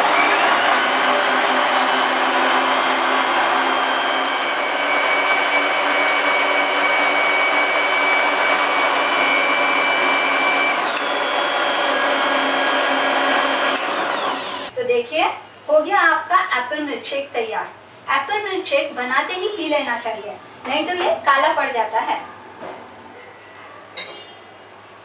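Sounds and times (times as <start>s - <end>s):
blender motor whine: 0.0s - 14.7s
liquid churning in blender: 0.0s - 14.7s.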